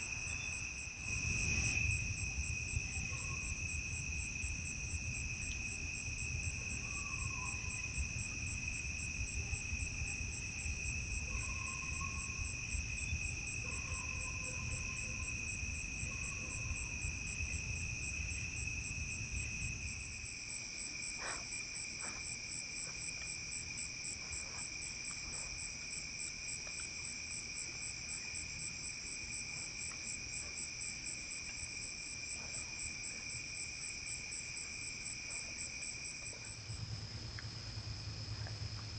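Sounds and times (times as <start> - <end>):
crickets trilling: 0.0 - 38.9
low rumble: 36.6 - 38.9.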